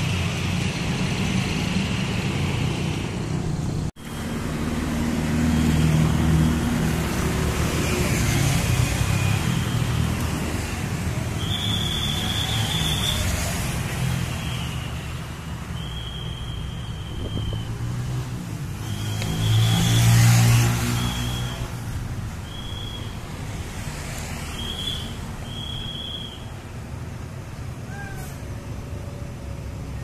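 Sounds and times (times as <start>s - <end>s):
road traffic: 0.0s - 30.0s
vehicle passing close: 16.8s - 26.1s.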